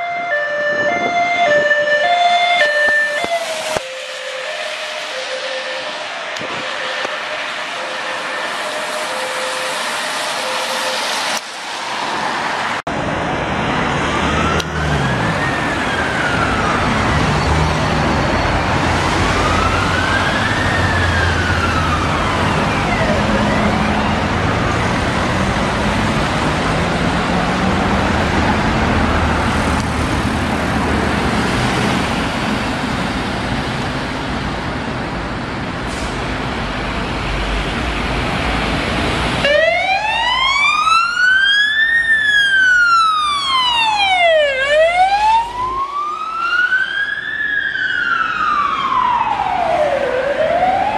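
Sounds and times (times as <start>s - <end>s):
two-tone hi-lo siren: 0.0s - 11.6s, 13.9s - 24.8s, 39.4s - 50.9s
distant fire engine wail siren: 0.0s - 34.7s, 37.4s - 50.9s
buses and cars running: 0.0s - 50.9s
tyre noise on wet road: 0.9s - 50.9s.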